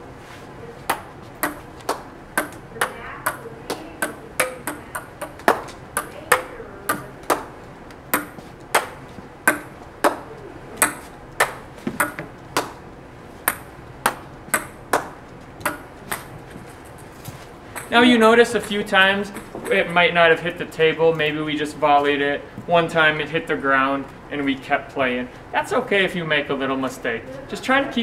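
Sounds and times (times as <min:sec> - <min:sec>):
ping pong ball clicks: 0:00.9 - 0:07.5, 0:08.2 - 0:10.2, 0:10.8 - 0:12.7, 0:13.5 - 0:16.3.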